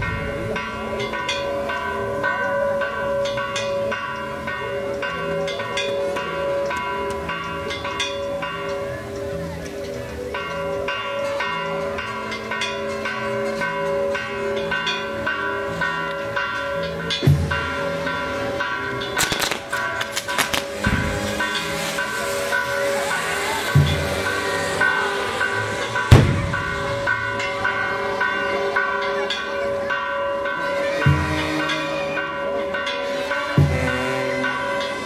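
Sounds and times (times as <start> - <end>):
church bells pealing: 0.0 - 35.0.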